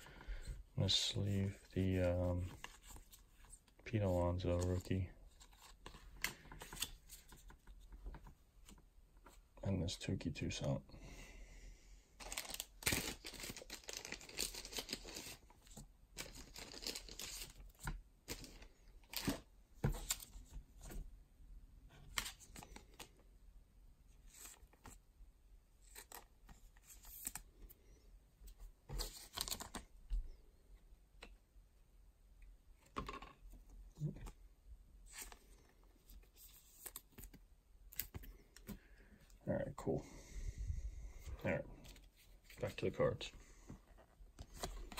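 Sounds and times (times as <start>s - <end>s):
plastic sleeves rustling: 0.0s - 9.6s, 12.2s - 21.0s, 40.2s - 44.9s.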